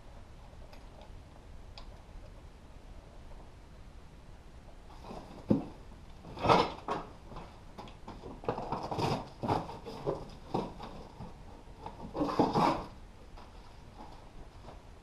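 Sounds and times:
cardboard scraping and rustling: 4.9s - 14.8s.

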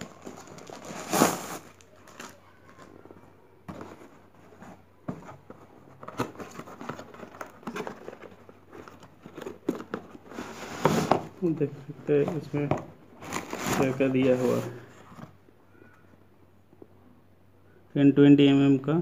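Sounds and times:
plastic mailer ripping: 0.0s - 2.4s
cardboard box crinkling and tapping: 3.6s - 11.3s.

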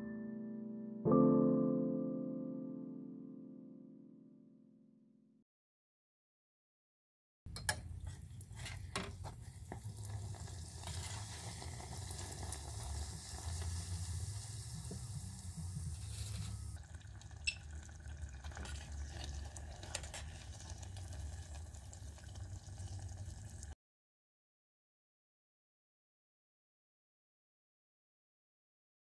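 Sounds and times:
oil sizzling and bubbling: 7.5s - 23.8s.

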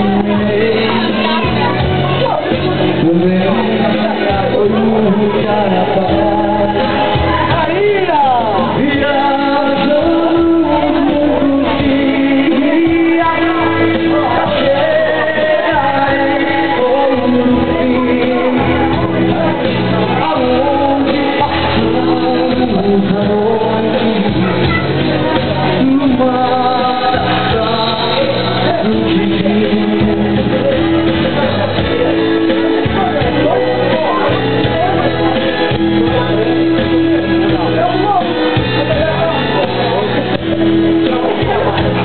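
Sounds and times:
backing music with bass line: 0.0s - 42.0s
man singing into a microphone: 0.0s - 42.0s.

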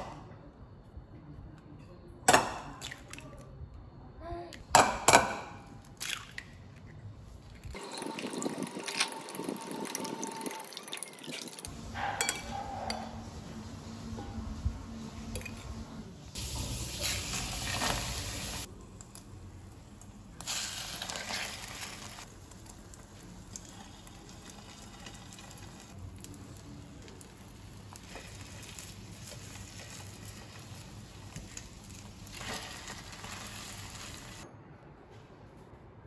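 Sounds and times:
bread sizzling in a pan: 16.4s - 18.7s, 20.4s - 34.4s.

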